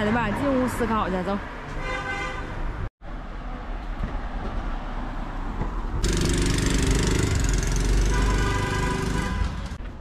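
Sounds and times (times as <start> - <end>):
vehicle engine nearby: 5.6 - 9.9.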